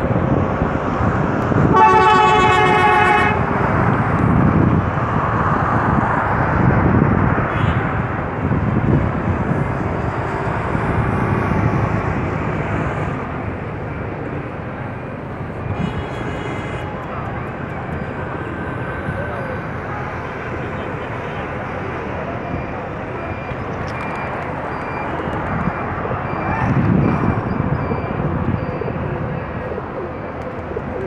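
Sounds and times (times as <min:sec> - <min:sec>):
loud outdoor background noise: 0:00.0 - 0:31.0
vehicle horn honk: 0:01.7 - 0:03.5.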